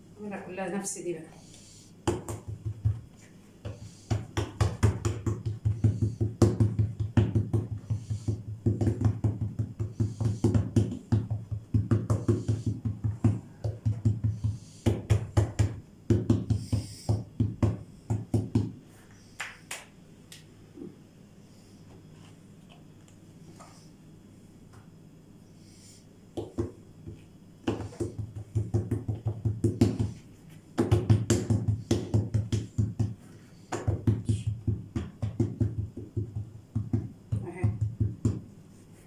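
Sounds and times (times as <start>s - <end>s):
hands slapping dough: 2.0s - 20.5s, 26.3s - 39.0s.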